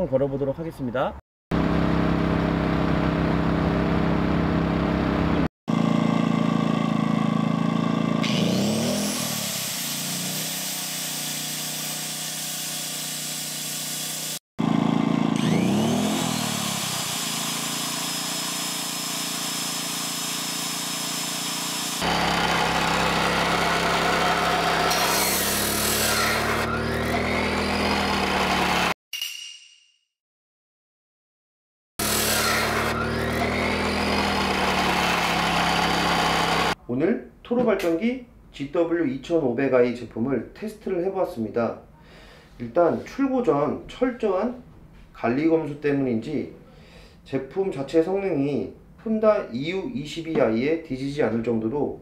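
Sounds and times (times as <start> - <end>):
generator engine hum: 1.6 - 9.2, 14.6 - 28.9, 32.0 - 36.8.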